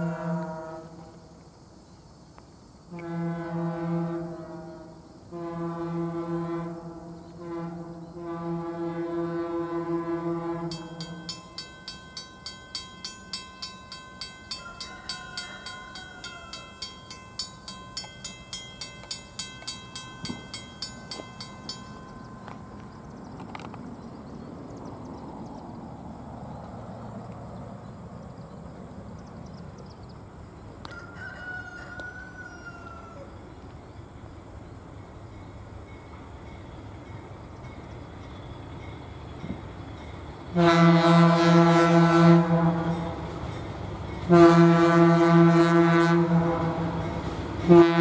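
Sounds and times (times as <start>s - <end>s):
diesel train rumble: 0.0s - 48.0s
crossing bell ringing: 10.6s - 23.7s, 35.2s - 40.6s, 42.4s - 44.9s, 46.2s - 48.0s
rooster crowing: 14.4s - 17.0s, 30.8s - 33.4s.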